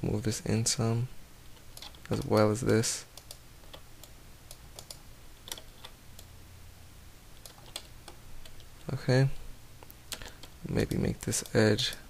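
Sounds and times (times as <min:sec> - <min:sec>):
low steady hum: 0:00.0 - 0:12.0
keyboard and mouse clicks: 0:01.6 - 0:06.3, 0:07.4 - 0:09.0, 0:09.8 - 0:12.0.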